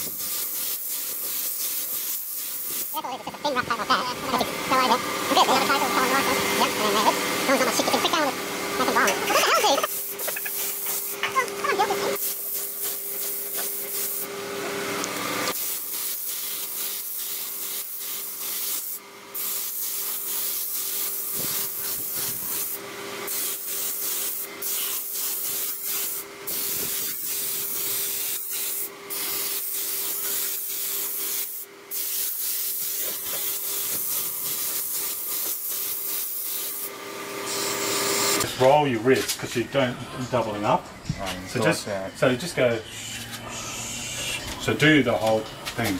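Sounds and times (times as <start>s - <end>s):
spray gun hissing: 0.0s - 3.2s, 9.4s - 14.3s, 15.5s - 36.9s.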